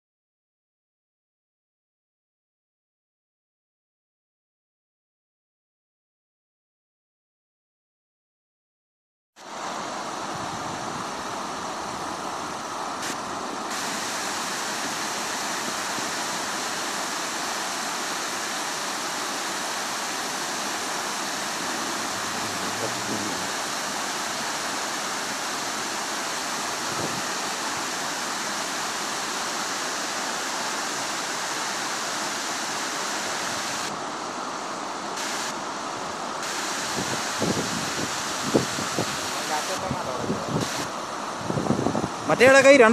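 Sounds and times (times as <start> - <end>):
river water rushing over rocks: 9.4 - 42.9.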